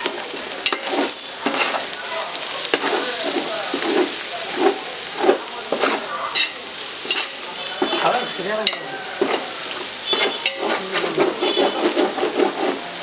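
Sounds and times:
food sizzling in a pot: 0.0 - 13.0
metal ladle scraping a pot: 0.2 - 1.9, 2.7 - 13.0
ladle clinking against pot: 10.1 - 11.9.

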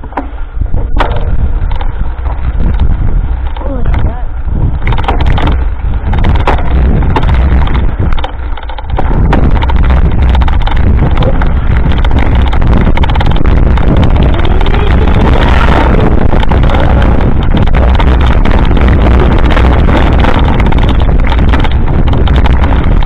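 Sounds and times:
bike knocks and rattles: 0.0 - 23.0
wind buffeting microphone: 0.0 - 23.0.

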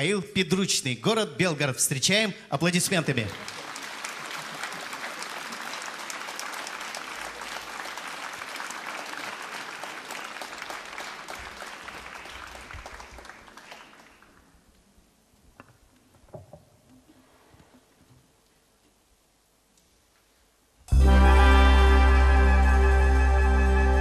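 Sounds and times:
audience applauding: 2.8 - 14.6.

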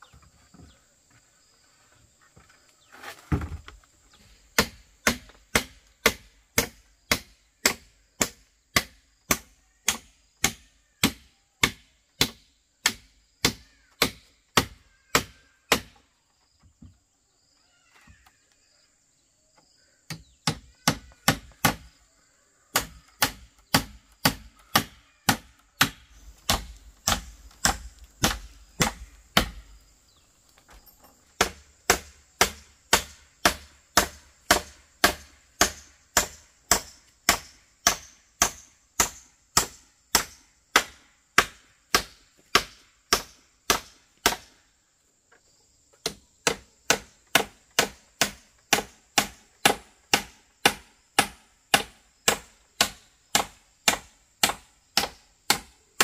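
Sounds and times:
hammer driving nails into bamboo: 4.6 - 16.0, 20.1 - 21.9, 22.7 - 29.8, 31.4 - 44.6, 46.0 - 56.0.

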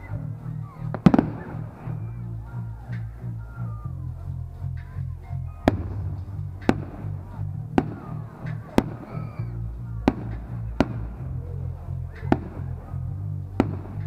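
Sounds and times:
music with steady bass beat: 0.0 - 14.0
firework bangs: 0.9 - 2.0, 5.7 - 9.2, 12.2 - 12.7, 13.6 - 14.0.

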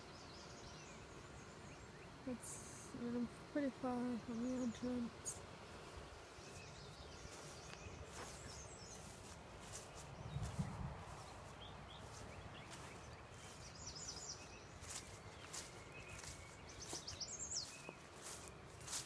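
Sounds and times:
birds chirping: 0.0 - 19.0
footsteps swishing through grass: 5.5 - 19.0.

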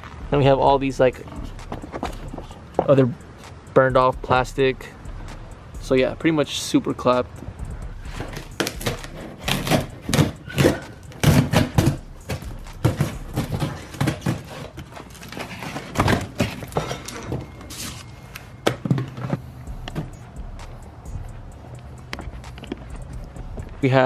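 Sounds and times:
cardboard flaps rustling and thumping: 8.6 - 17.4.

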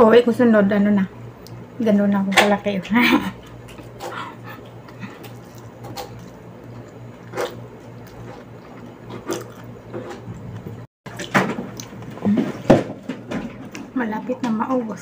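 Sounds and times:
steady low hum: 0.0 - 15.0
person chewing: 3.4 - 12.6.

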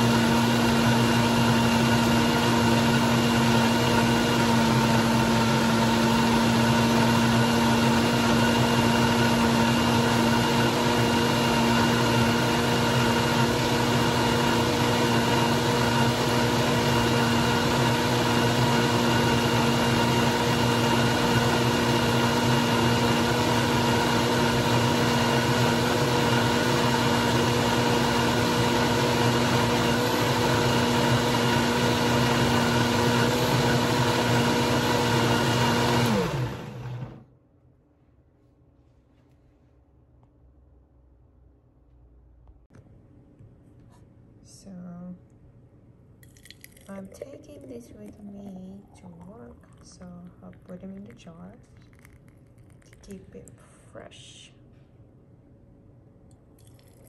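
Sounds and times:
blender running: 0.0 - 37.2.

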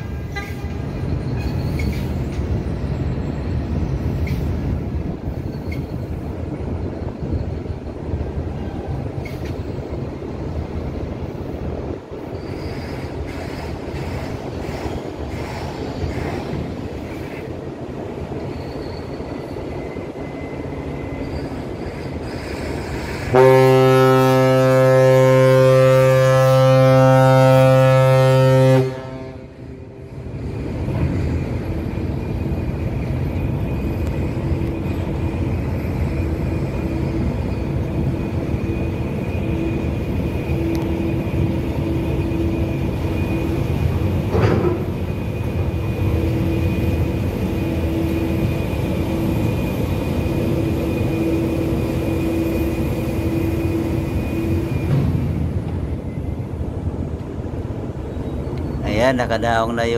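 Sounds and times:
ship's horn blast: 23.3 - 29.9.

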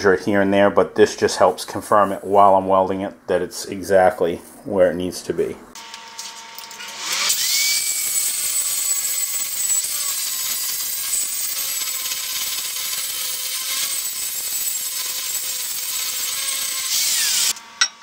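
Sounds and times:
angle grinder grinding steel: 5.8 - 18.0.

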